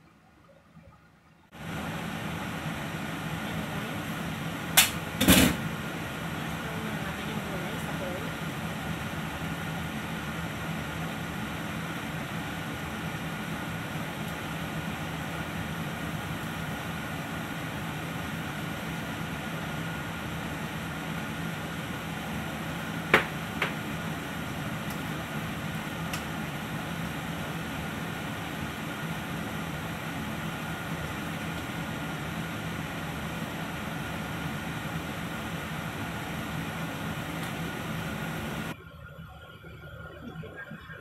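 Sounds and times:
kitchen extractor fan whirring: 1.5 - 38.8.

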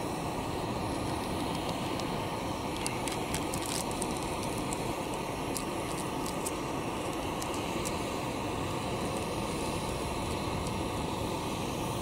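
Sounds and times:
low background rumble: 0.0 - 12.0
powder pouring into cup: 2.6 - 8.1.

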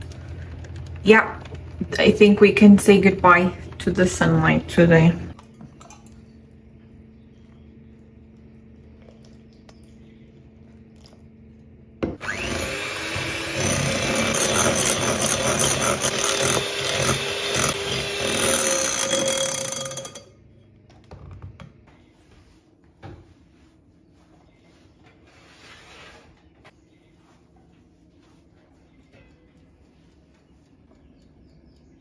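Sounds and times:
electric hand mixer whipping: 12.2 - 20.2.

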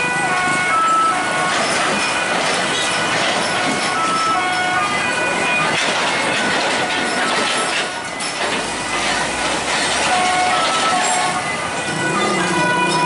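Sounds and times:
truck engine and tyres rumbling: 0.0 - 13.0.

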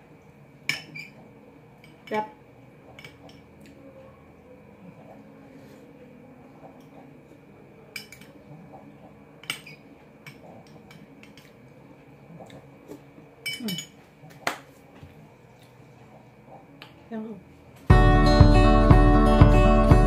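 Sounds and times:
spoon clinking against bowl: 7.9 - 8.4, 9.4 - 11.6, 13.4 - 14.0.

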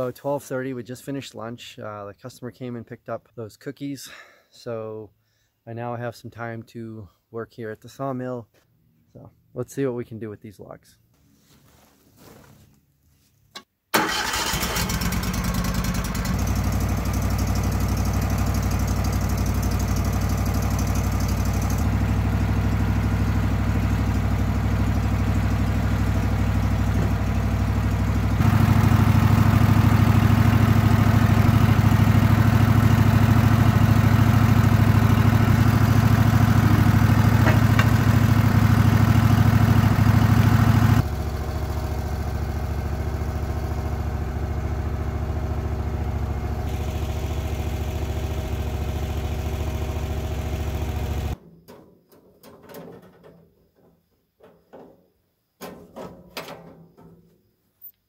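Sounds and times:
sawmill gasoline engine running: 14.0 - 51.4.

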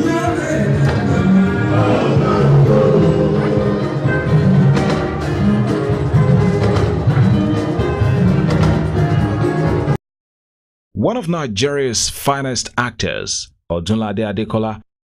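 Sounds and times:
band music with drums: 0.0 - 10.0.

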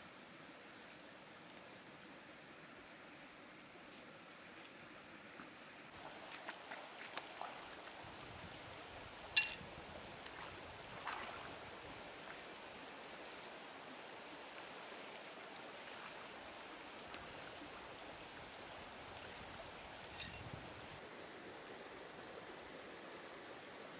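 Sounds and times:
stream running over rocks: 0.0 - 23.9
wading splashes and knocks: 5.9 - 7.9, 10.2 - 11.6.

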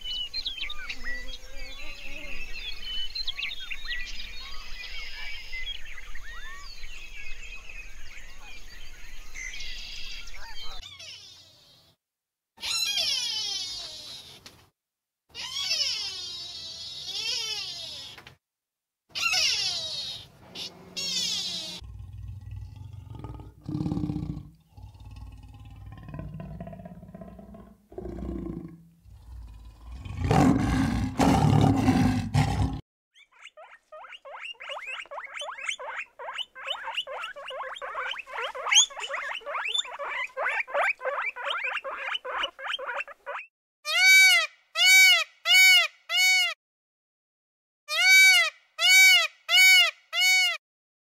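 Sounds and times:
rising and falling animal calls: 19.1 - 45.2
animal roaring and growling: 21.7 - 32.8.

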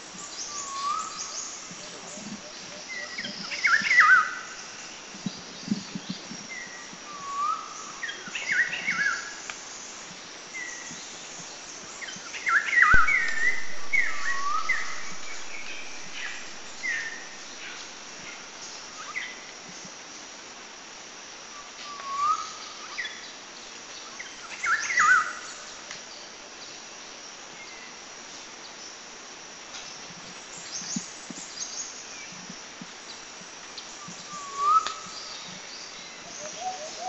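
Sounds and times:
steady outdoor hiss: 0.0 - 37.0
rising bird whistle: 12.8 - 15.3, 34.1 - 35.2
birds chirping: 34.0 - 37.0.

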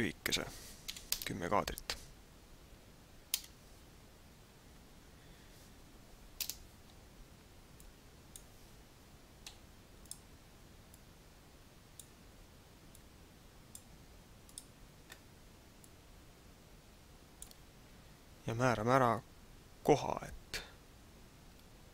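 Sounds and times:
mouse and keyboard clicks: 6.4 - 6.6.

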